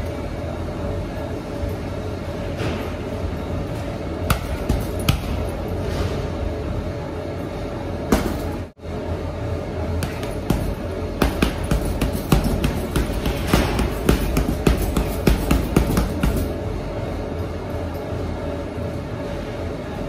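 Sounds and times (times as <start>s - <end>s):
boxing gloves thudding into punching bag: 8.1s - 8.6s, 10.0s - 16.5s.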